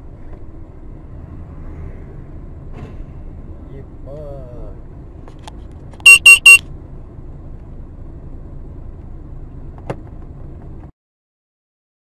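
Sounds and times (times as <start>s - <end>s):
vehicle engine humming: 0.0s - 10.9s
short electronic beeps: 6.0s - 6.6s.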